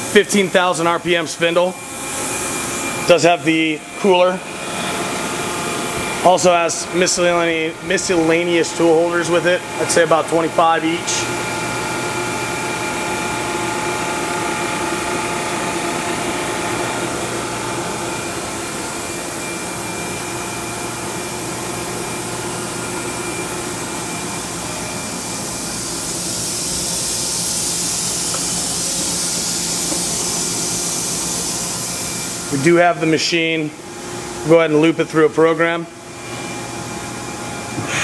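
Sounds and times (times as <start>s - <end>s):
machining center humming: 0.0s - 38.0s
high hiss: 25.1s - 32.5s.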